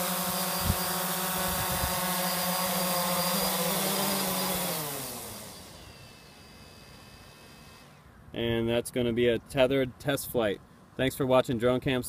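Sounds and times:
drone propellers whining: 0:00.0 - 0:08.1.

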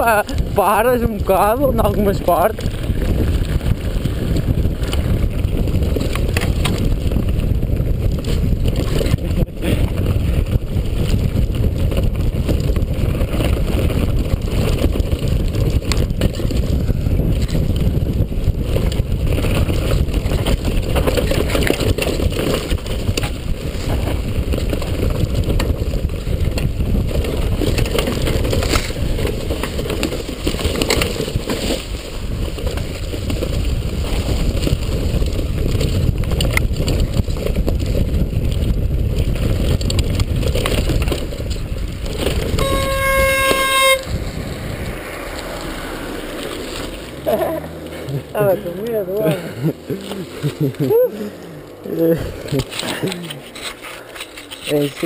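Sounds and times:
bike knocking and rattling: 0:00.0 - 0:55.0
bike tyres rumbling on dirt: 0:00.0 - 0:55.0.

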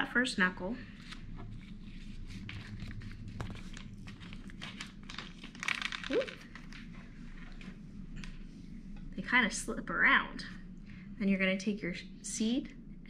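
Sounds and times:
plastic bag crinkling: 0:02.0 - 0:07.0.

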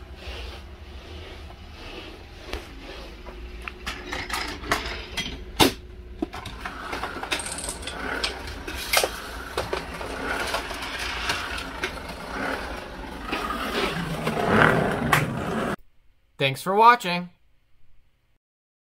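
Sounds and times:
clicks and clatters of small parts: 0:06.2 - 0:12.0.

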